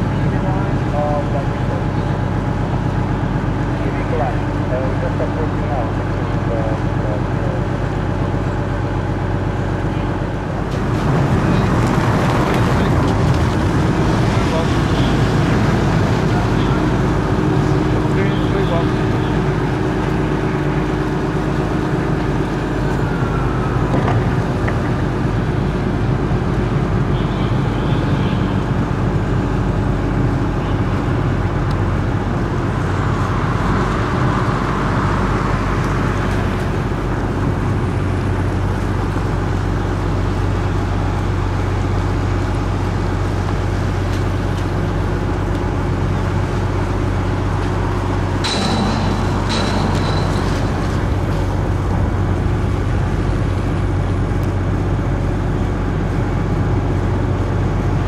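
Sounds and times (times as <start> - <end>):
engine drone: 0.0 - 58.0
low hum tones: 47.0 - 56.3
short high tone: 48.4 - 52.0
sharp rattle: 48.4 - 53.2.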